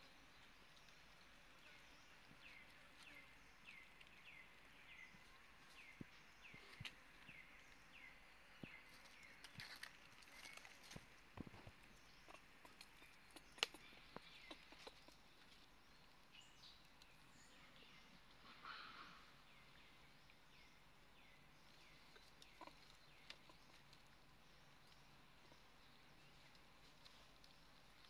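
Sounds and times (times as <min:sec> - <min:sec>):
faint clicks and rustles: 0:08.6 - 0:17.4, 0:21.6 - 0:28.0.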